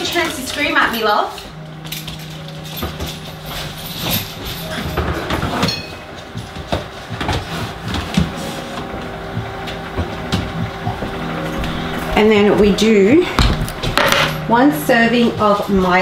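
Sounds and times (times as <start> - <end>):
microwave oven humming: 0.0 - 16.0
knocks and clatters of handling: 13.4 - 14.5.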